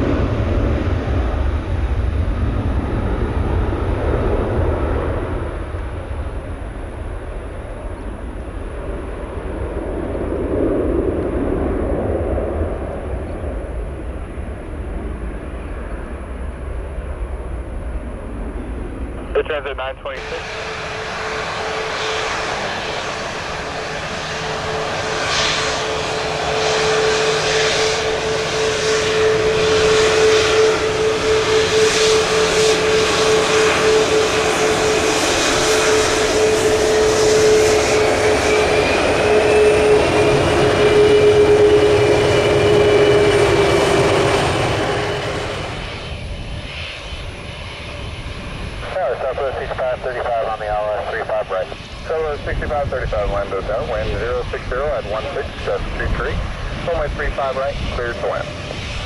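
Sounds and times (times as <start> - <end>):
jet engines passing: 0.0 - 59.0.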